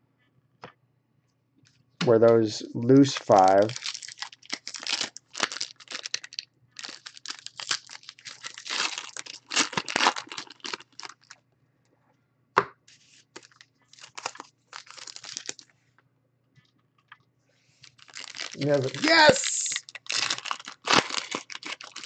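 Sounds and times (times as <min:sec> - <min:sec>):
foil wrappers tearing and crinkling: 0:03.0 - 0:11.4, 0:13.3 - 0:15.6, 0:17.8 - 0:22.0.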